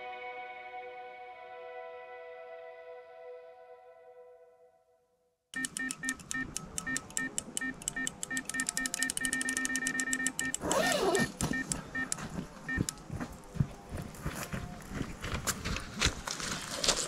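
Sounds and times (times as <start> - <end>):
electronic bite alarm beeping: 5.6 - 13.0.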